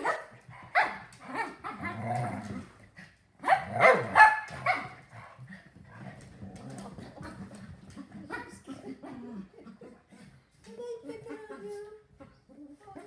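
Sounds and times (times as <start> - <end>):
dogs growling: 1.3 - 4.2, 5.1 - 8.2
dogs barking: 3.4 - 5.0
dogs scuffling: 4.0 - 9.0.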